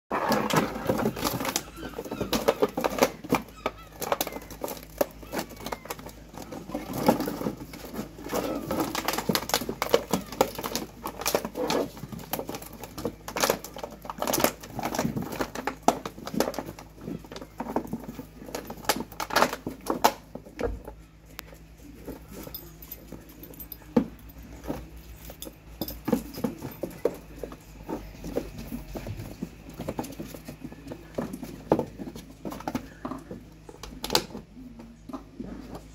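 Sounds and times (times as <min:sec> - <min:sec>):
puppies scrabbling in sand: 0:00.1 - 0:20.5
plastic bottles knocking: 0:00.1 - 0:21.0.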